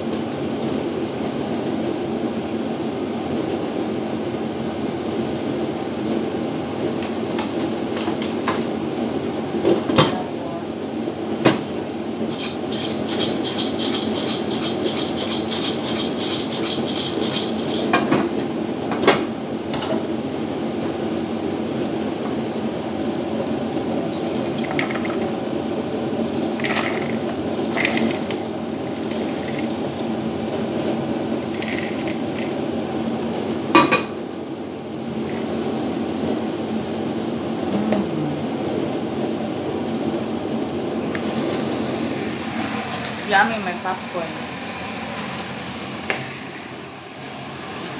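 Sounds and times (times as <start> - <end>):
popcorn popping in pot: 12.3 - 18.0, 24.3 - 32.8
steady hum: 19.4 - 47.9.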